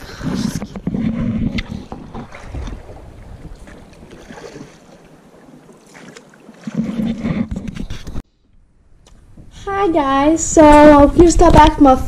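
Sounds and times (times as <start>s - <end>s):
wind buffeting microphone: 0.0s - 5.8s
oars splashing in water: 0.0s - 8.2s.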